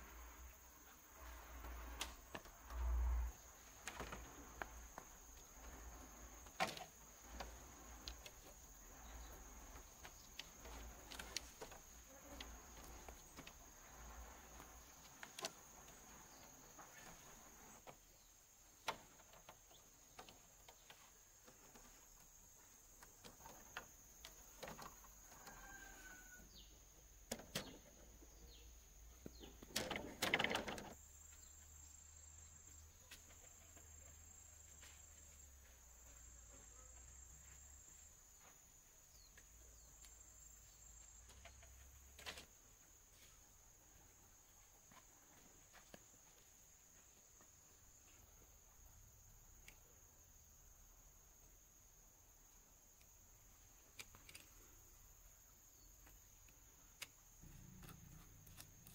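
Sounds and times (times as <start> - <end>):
insects trilling: 0.0 - 58.9
bamboo clattering and rustling: 1.2 - 26.4, 27.2 - 31.0, 39.2 - 46.5.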